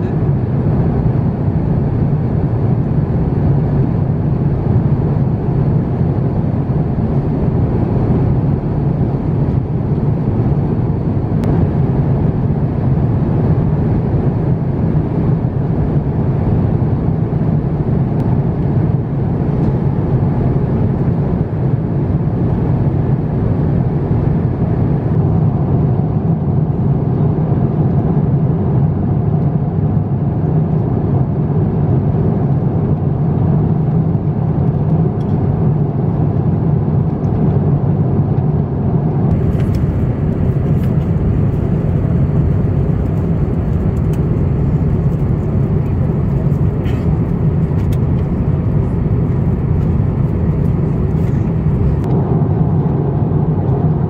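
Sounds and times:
airplane cabin engine rumble: 0.0s - 54.0s.

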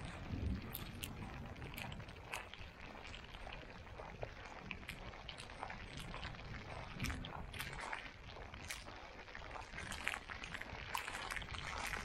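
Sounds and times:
wind buffeting microphone: 0.0s - 8.2s.

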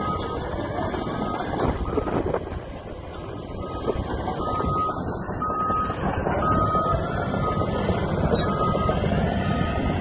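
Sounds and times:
heavy machinery rumbling: 0.0s - 10.0s.

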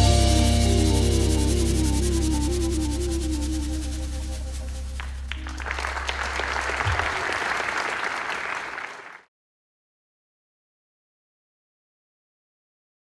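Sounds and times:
low bass note: 0.0s - 5.8s
live band holding final chord: 0.0s - 8.4s
audience applause: 4.9s - 9.3s.

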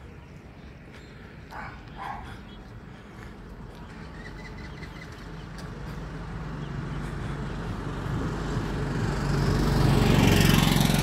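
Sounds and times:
road noise hiss: 0.0s - 11.0s
vehicle engine approaching: 2.4s - 11.0s.

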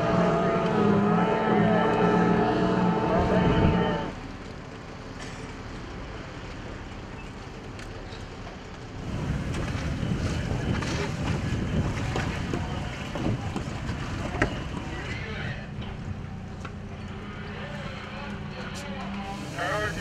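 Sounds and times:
distant outboard motor: 0.0s - 20.0s
water splashing around boat: 0.0s - 20.0s
wind buffeting microphone: 9.0s - 16.2s.

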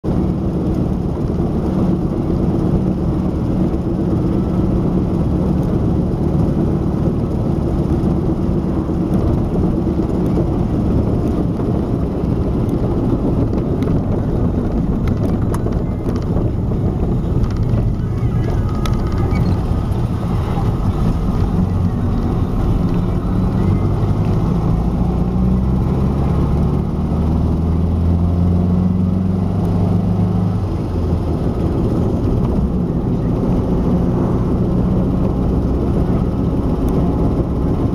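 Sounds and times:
road and engine noise: 0.0s - 37.9s
lower hum rising in pitch: 0.1s - 37.9s
rear axle humming: 0.1s - 37.9s.

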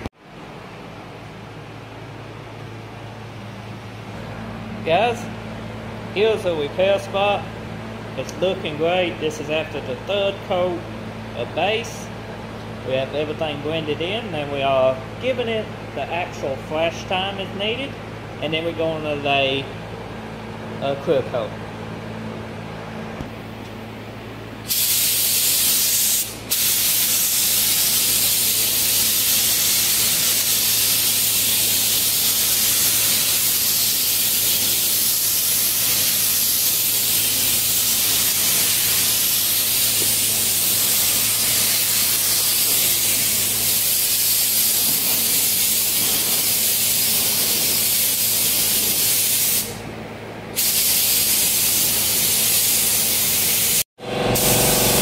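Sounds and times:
steady low hum: 0.0s - 55.0s
paint spray gun hissing: 24.6s - 49.8s, 50.6s - 55.0s.

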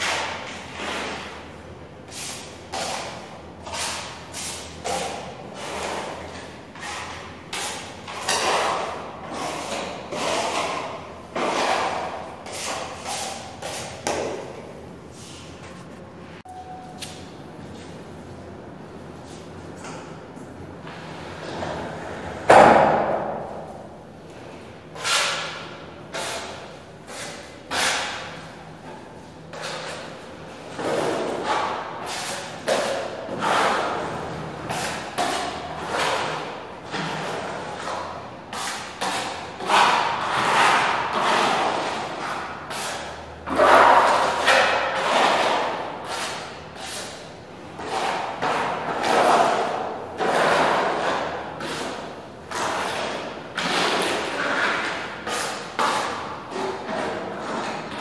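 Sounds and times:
putty knife scraping wall: 2.1s - 14.4s, 25.0s - 28.5s, 29.5s - 58.0s
loud knock ringing in echoing room: 22.5s - 23.8s.

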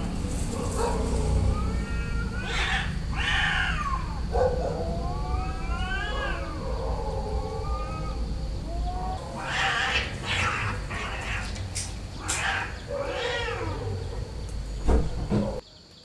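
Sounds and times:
cat meowing: 0.8s - 14.2s
steady low rumble: 2.8s - 9.5s.

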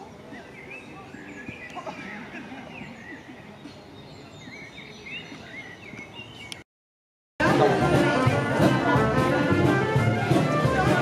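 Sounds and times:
songbirds chirping and singing: 0.0s - 6.6s
outdoor background hush: 0.0s - 6.7s.

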